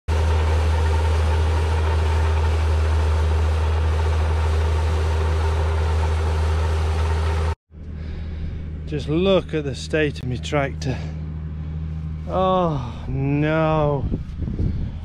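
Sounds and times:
tractor engine droning: 0.1s - 15.0s.

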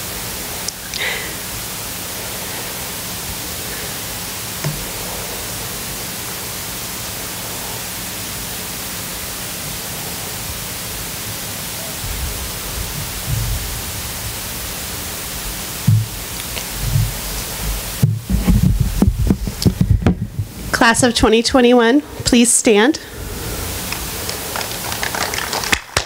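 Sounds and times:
steady background hiss: 0.0s - 26.0s
low rumbles: 12.0s - 21.4s, 23.0s - 25.6s.

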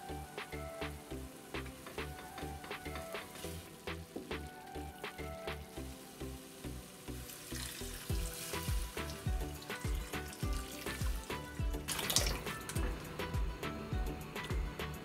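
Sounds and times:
background music with beat: 0.0s - 15.0s
water pouring into sauce: 3.1s - 13.1s.

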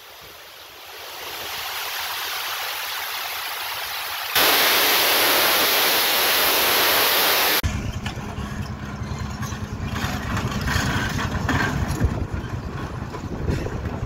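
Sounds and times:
loud steady hiss: 0.0s - 7.6s
excavator diesel engine rumbling: 7.6s - 14.0s.

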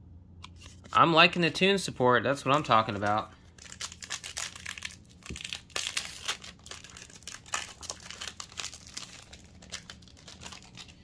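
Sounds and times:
foil wrapper crinkling: 2.5s - 11.0s.

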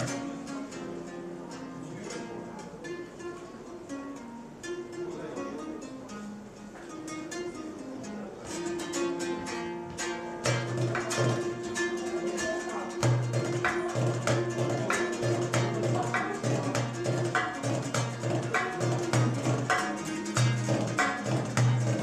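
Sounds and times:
lute plucked and strummed: 0.0s - 22.0s
frame drum strokes and rim taps: 8.4s - 22.0s.

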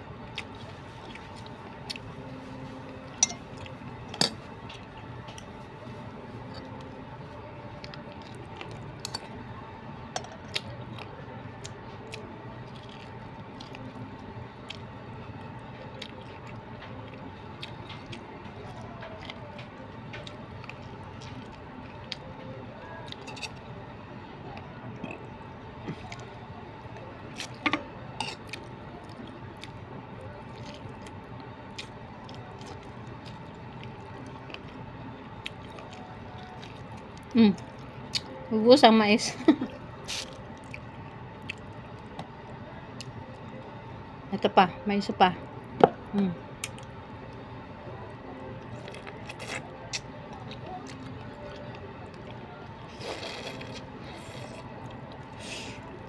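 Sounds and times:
steady faint hum: 0.0s - 56.0s
chewing corn off the cob: 48.7s - 56.0s.

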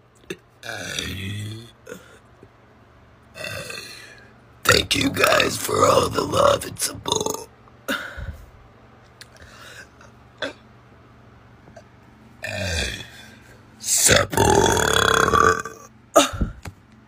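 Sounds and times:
woman burping: 14.4s - 16.4s.

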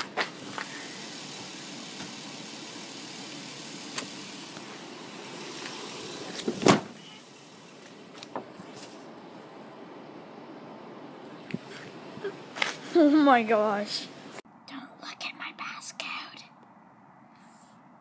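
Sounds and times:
steady low rush: 7.2s - 15.2s.

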